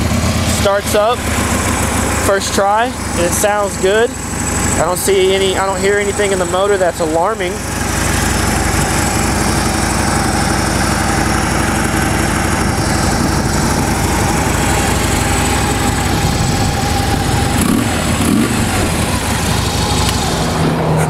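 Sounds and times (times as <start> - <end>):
motorcycle engine idling: 0.0 - 21.0.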